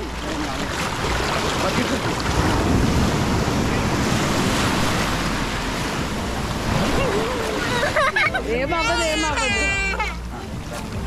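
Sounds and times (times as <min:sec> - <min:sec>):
surf washing over sand: 0:00.0 - 0:08.5
wind on microphone: 0:01.6 - 0:07.8.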